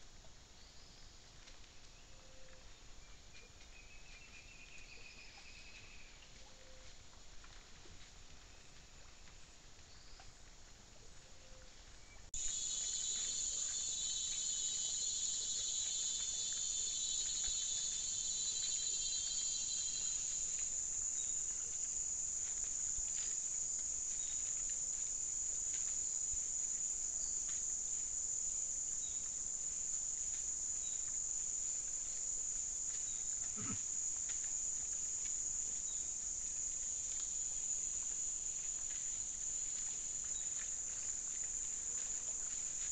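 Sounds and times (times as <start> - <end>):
high insect drone: 12.4 - 42.9
pulsing insect trill: 12.4 - 42.9.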